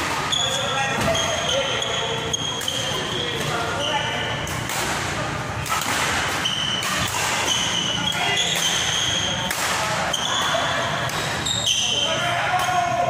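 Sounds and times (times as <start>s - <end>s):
voices chattering: 0.0s - 13.0s
shoes squeaking on court floor: 0.2s - 4.3s, 6.3s - 9.4s, 10.0s - 12.0s
racket hitting shuttlecock: 4.5s - 7.6s.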